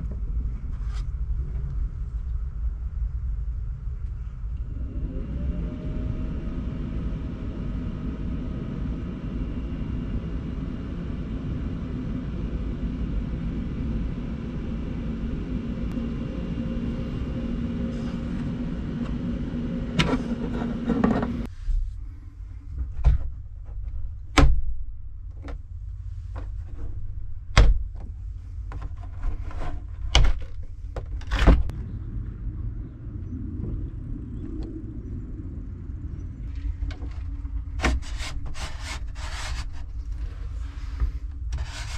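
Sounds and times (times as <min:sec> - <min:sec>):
small van engine running: 0:04.5 - 0:21.5.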